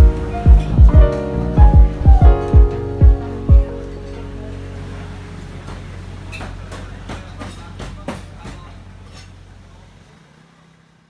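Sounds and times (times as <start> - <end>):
lo-fi hip-hop music: 0.0 - 5.0.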